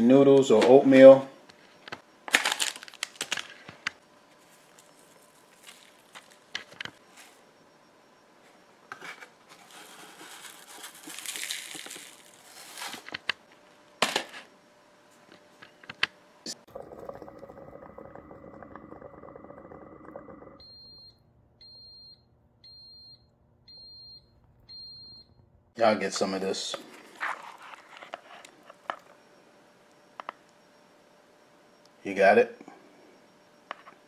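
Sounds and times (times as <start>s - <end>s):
coffee maker humming: 16.5s - 21.8s.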